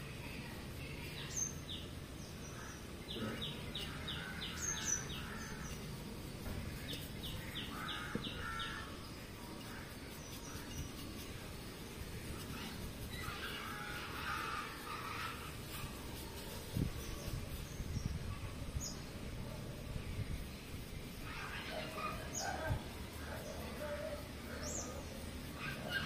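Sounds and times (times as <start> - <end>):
low background noise: 0.0 - 26.0
bird chirping: 0.2 - 19.1.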